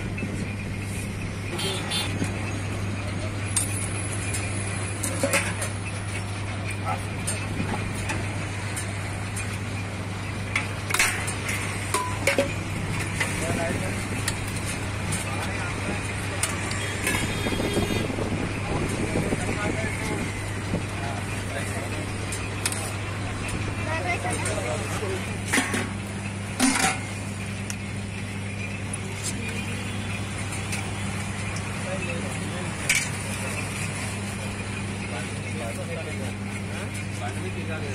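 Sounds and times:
constant low hum: 0:00.0 - 0:37.9
street traffic noise: 0:00.0 - 0:37.9
ladle clinking against metal pots: 0:04.3 - 0:05.9, 0:10.6 - 0:13.5, 0:26.6 - 0:27.2
metal ladle clanking on pot: 0:26.6 - 0:27.1.

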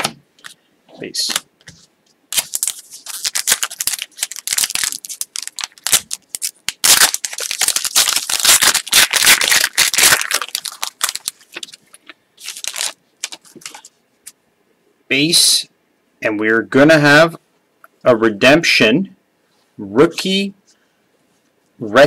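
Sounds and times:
foil wrapper crinkling and tearing: 0:02.3 - 0:13.9.

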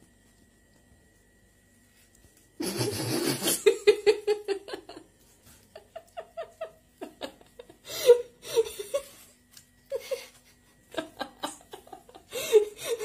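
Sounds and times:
person laughing: 0:02.6 - 0:05.1, 0:05.7 - 0:09.3, 0:09.9 - 0:13.0.

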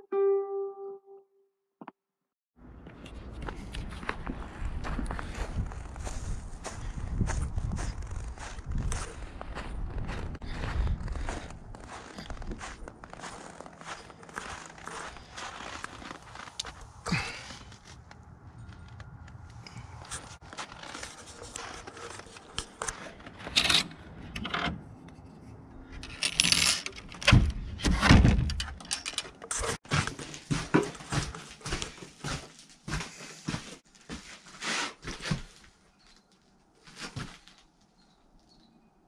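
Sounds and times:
wooden door opening: 0:26.3 - 0:29.4.

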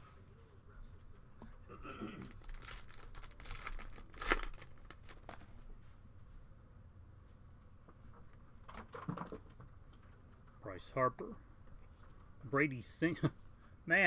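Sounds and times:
plastic wrapper crinkling and tearing: 0:02.3 - 0:05.5.

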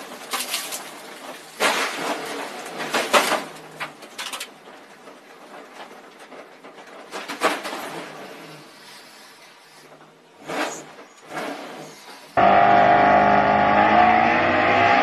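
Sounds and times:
car crashing and scraping: 0:00.0 - 0:15.0.

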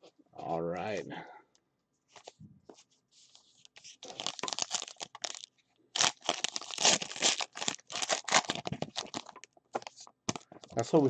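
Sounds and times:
foil wrappers torn and crinkled: 0:04.0 - 0:10.4.

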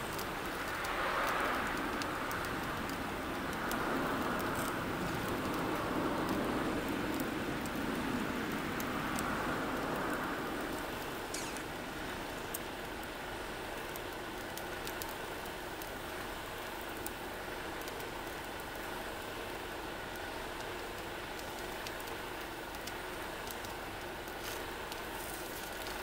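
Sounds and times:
food sizzling in oil: 0:10.6 - 0:12.5.

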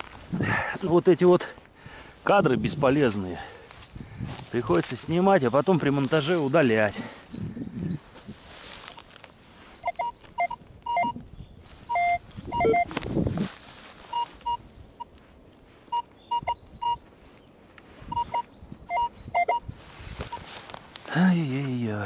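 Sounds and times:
scuffing rustle: 0:02.7 - 0:07.3, 0:08.0 - 0:10.7, 0:11.6 - 0:16.1, 0:19.8 - 0:21.8
metal detector short beeps: 0:09.8 - 0:11.2, 0:11.9 - 0:13.0, 0:14.1 - 0:15.1, 0:15.9 - 0:17.0, 0:18.1 - 0:19.7.

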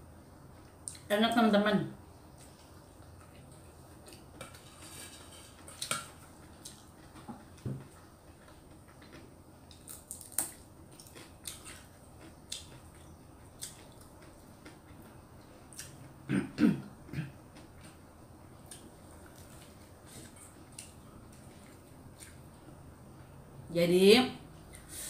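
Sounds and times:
person chewing and eating: 0:02.3 - 0:16.1, 0:18.6 - 0:22.6.

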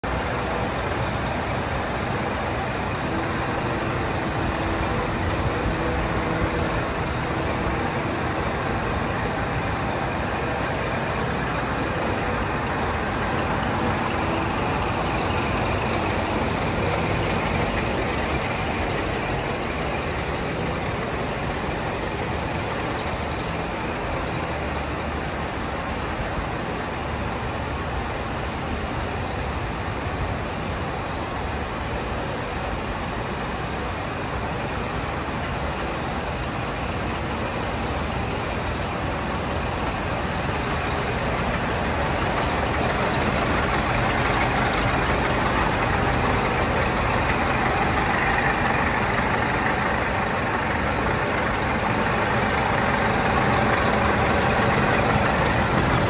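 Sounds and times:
diesel truck engine idling: 0:00.0 - 0:56.0.

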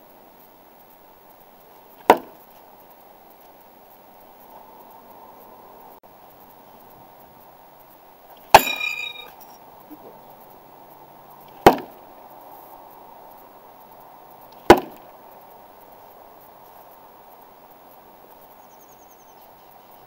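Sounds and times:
knife hitting metal clang: 0:08.5 - 0:09.3.

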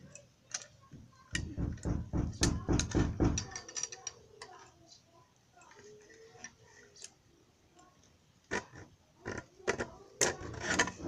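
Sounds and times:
metal parts clicking and knocking: 0:00.0 - 0:04.7, 0:08.4 - 0:11.0.

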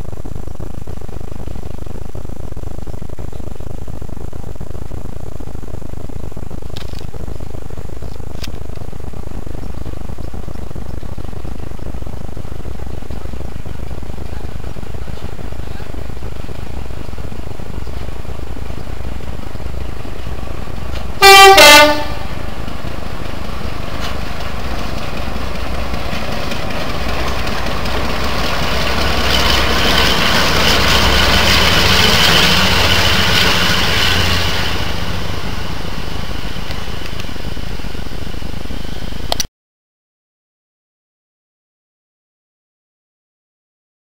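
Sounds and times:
locomotive engine passing: 0:06.5 - 0:39.4
locomotive two-tone horn: 0:21.2 - 0:22.4.

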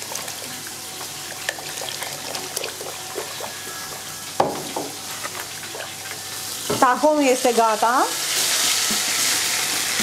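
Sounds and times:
liquid pouring into a pot: 0:00.0 - 0:06.2.

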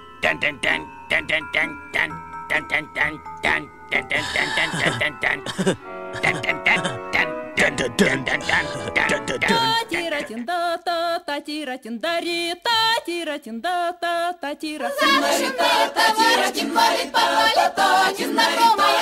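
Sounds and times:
high voice singing with vibrato: 0:00.2 - 0:19.0
group of voices singing: 0:06.2 - 0:11.0, 0:12.2 - 0:19.0.

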